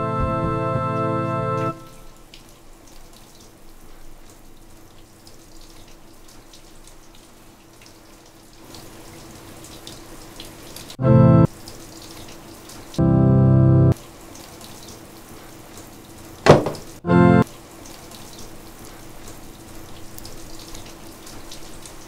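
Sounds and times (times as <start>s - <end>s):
keyboard music: 0.0s - 2.1s, 11.0s - 11.5s, 13.0s - 14.0s, 17.0s - 17.4s
sustained keyboard chord: 0.0s - 2.1s, 11.0s - 11.5s, 13.0s - 14.0s, 17.0s - 17.5s.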